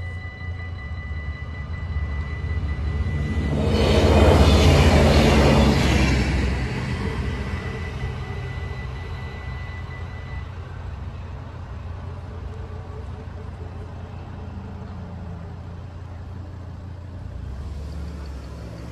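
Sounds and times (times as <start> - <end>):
diesel train rumbling past: 0.0 - 18.9.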